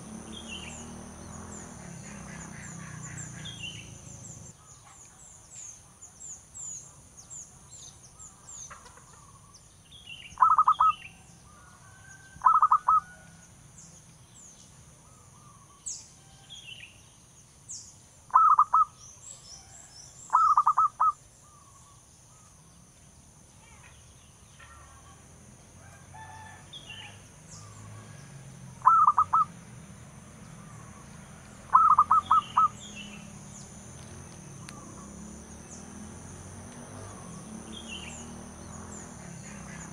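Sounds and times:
small birds chirping: 0.0 - 13.2, 13.8 - 25.2, 26.7 - 39.9
dove trilled cooing: 10.4 - 11.0, 12.4 - 13.2, 18.3 - 19.0, 20.3 - 21.7, 28.8 - 29.5, 31.7 - 33.3.

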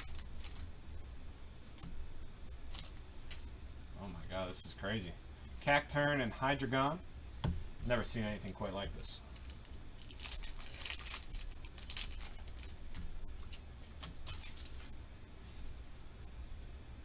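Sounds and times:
foil wrapper crinkling: 0.0 - 0.7, 2.5 - 3.0, 9.3 - 14.9
cards rustling: 0.0 - 1.0, 1.6 - 3.5, 7.9 - 15.0.

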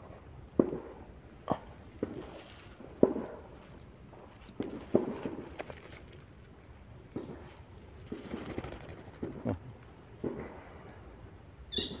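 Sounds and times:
high insect drone: 0.0 - 12.0.

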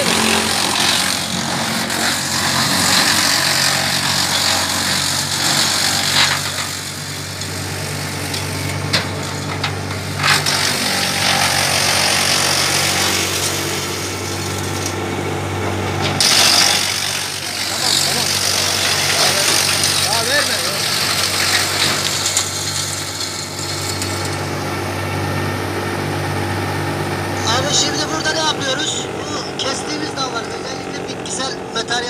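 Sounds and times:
tractor engine hum: 0.0 - 32.0
wood chipper chipping branches: 0.0 - 32.0
wood cracking: 16.1 - 24.6.

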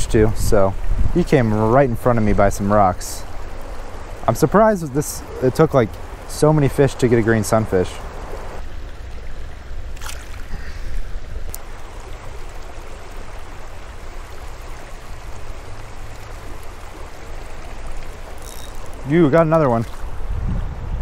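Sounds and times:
water rushing over rocks: 0.0 - 20.4
faint ticks: 17.8 - 19.1.

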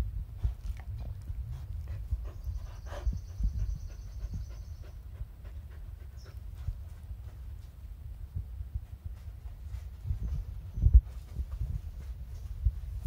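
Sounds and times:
dogs panting: 0.4 - 7.4
dogs scuffling with small knocks: 8.8 - 13.0.

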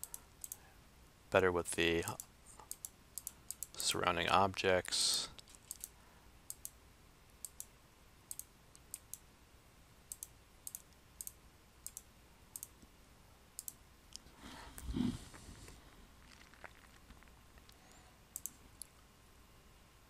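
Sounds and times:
computer mouse clicks: 0.0 - 0.6, 2.1 - 3.8, 5.4 - 6.8, 7.4 - 7.7, 8.3 - 9.2, 10.1 - 12.8, 13.6 - 14.2, 18.3 - 18.9.

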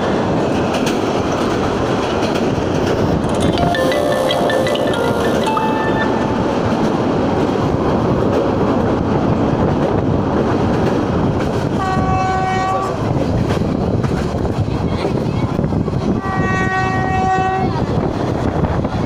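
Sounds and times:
train wheels rumbling on rails: 0.0 - 3.6, 6.6 - 19.0
train horn: 11.8 - 13.0, 16.2 - 17.8.

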